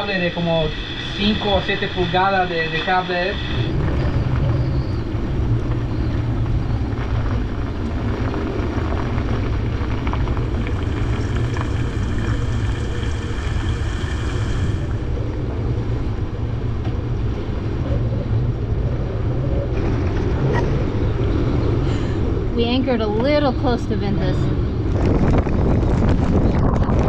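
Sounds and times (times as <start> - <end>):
high whistling tone: 0.0 - 5.1
wind buffeting microphone: 0.0 - 27.0.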